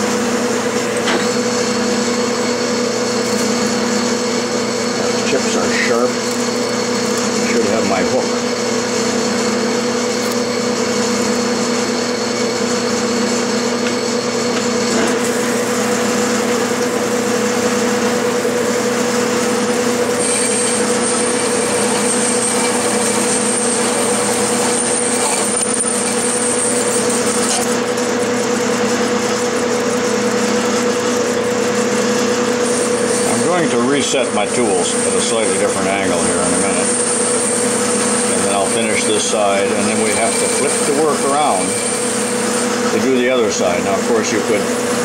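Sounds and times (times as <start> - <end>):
metal lathe humming: 0.0 - 45.0
thin high whine: 19.1 - 27.8.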